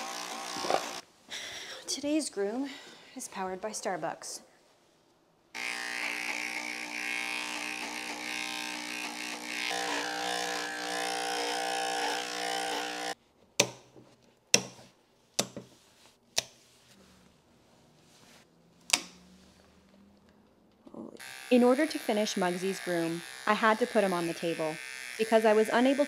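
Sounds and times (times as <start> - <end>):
electric clipper humming: 0.0 - 1.0, 5.6 - 13.2, 21.2 - 26.0.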